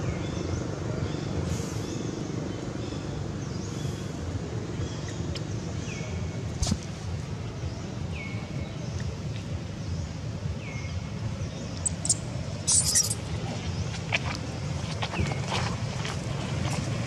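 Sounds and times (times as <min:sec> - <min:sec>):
low outdoor rumble: 0:00.0 - 0:17.0.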